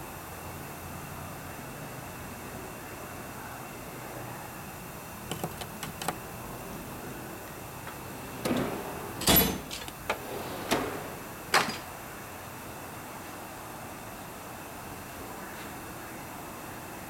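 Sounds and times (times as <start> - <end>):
steel drawers sliding and clunking: 5.3 - 12.0.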